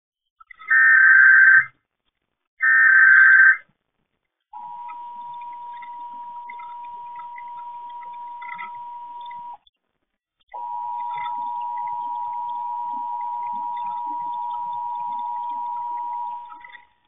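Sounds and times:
digital header data bursts: 0:04.6 - 0:09.6, 0:10.6 - 0:16.9
steady attention tone: 0:04.6 - 0:09.7, 0:10.5 - 0:17.0.

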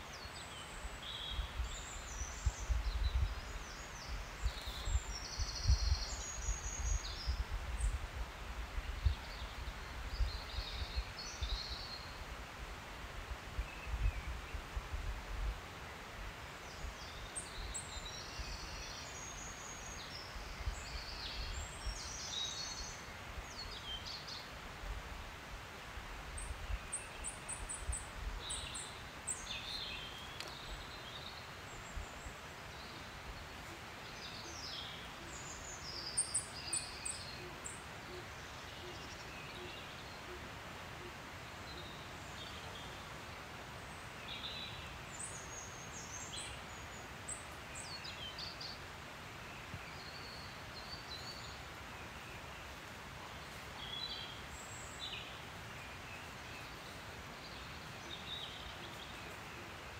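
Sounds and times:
songbirds chirping and trilling: 0:00.0 - 0:59.9
wind rumble on microphone: 0:01.1 - 0:11.8, 0:13.2 - 0:15.6.

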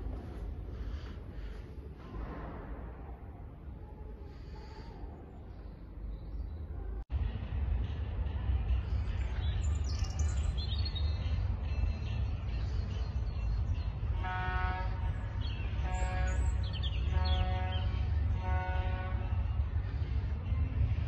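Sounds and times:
small birds chirping: 0:09.1 - 0:14.1, 0:15.3 - 0:18.1.

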